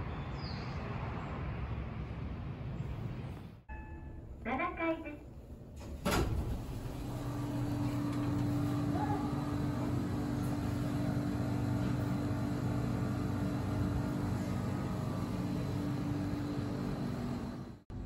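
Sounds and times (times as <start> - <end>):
low machine hum: 3.7 - 18.0.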